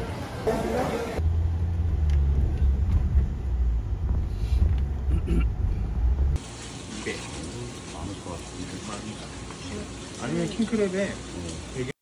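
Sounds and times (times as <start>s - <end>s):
car engine and tyres rumble: 0.7s - 6.4s.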